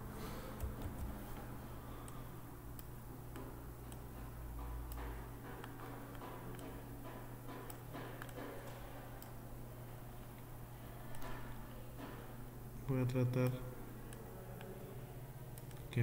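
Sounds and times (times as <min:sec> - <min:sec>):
steady low hum: 0:00.0 - 0:16.0
computer mouse clicking: 0:04.9 - 0:06.8, 0:07.6 - 0:09.4, 0:15.6 - 0:15.9.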